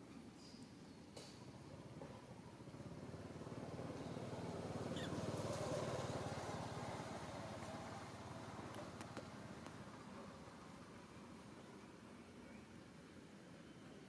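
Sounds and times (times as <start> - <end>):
vehicle engine passing by: 2.8 - 9.6.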